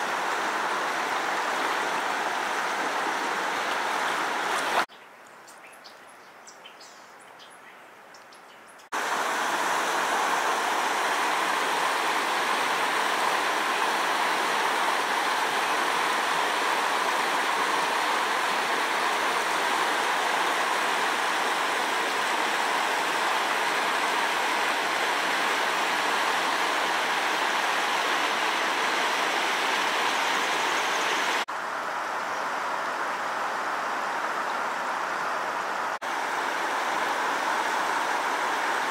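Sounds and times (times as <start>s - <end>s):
creek water hissing: 0.0s - 4.9s, 8.9s - 38.9s
river rapids rushing: 0.0s - 4.9s, 9.0s - 31.4s, 35.6s - 38.9s.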